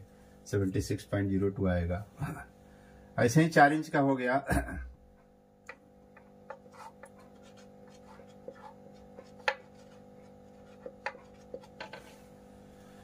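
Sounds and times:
faint steady hum: 0:00.0 - 0:13.0
marker writing on whiteboard: 0:05.7 - 0:12.3.

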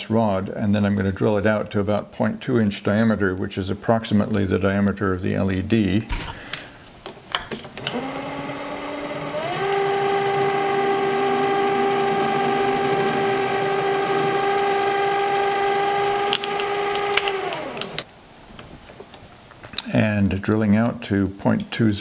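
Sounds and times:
drill cutting brass rod: 0:07.8 - 0:18.1
lathe motor whine: 0:07.8 - 0:18.1.

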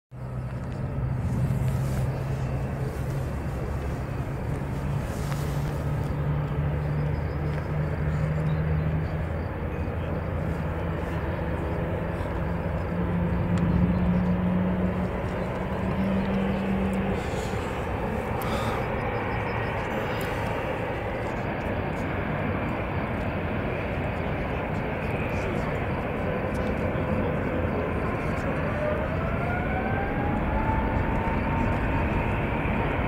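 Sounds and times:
jet engines rumbling: 0:00.2 - 0:33.0.

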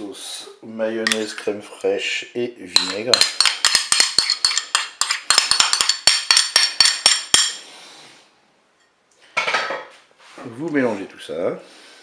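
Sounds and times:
utensil scraping a bowl: 0:02.8 - 0:07.7.

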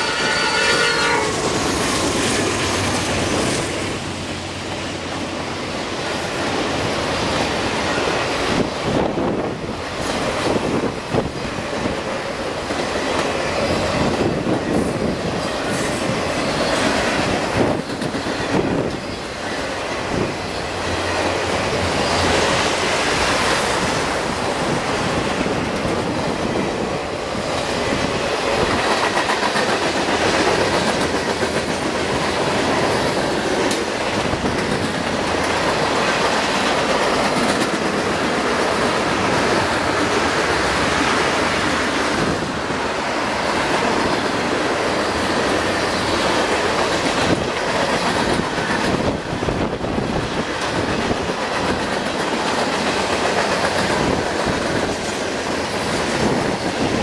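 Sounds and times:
freight train rumbling past: 0:00.0 - 0:57.0.

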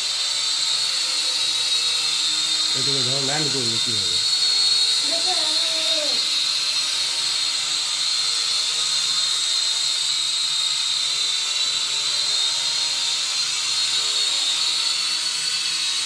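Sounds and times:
toy drone propellers buzzing: 0:00.0 - 0:16.0.

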